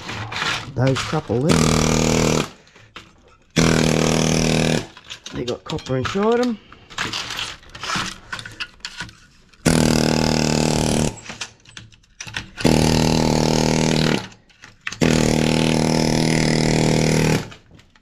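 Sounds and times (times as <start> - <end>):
pneumatic air hammer buzzing: 1.4 - 2.6, 3.5 - 5.1, 9.6 - 11.6, 12.2 - 17.6.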